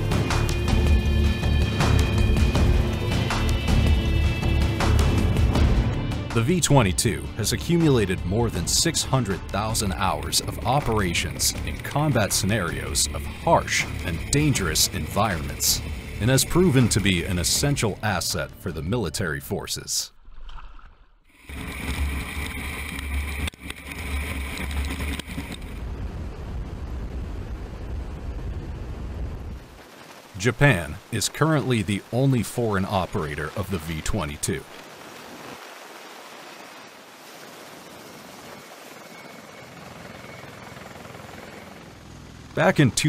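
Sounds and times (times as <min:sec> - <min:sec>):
aircraft rotors and engines din: 0:00.0 - 0:43.0.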